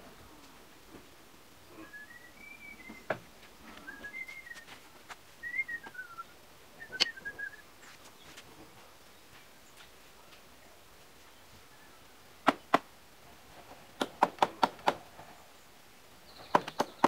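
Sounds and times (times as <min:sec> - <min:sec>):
person whistling melody: 0:03.8 - 0:04.8, 0:05.4 - 0:07.6.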